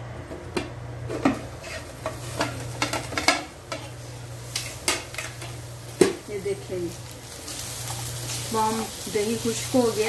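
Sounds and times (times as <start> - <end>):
chicken sizzling in pan: 1.1 - 10.0.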